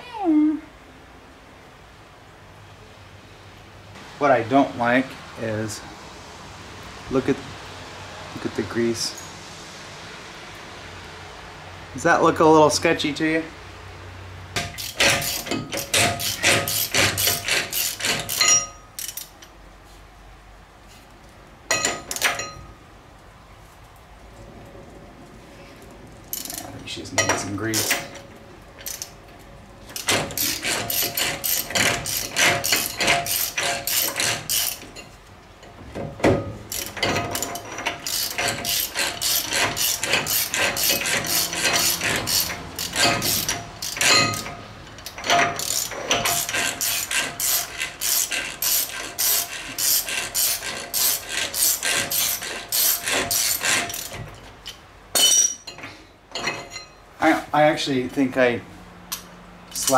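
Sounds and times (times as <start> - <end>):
ratchet wrench clicking: 14.6 - 19.5, 26.3 - 26.7, 28.8 - 29.2, 29.9 - 35.0, 36.7 - 54.8, 59.1 - 59.9.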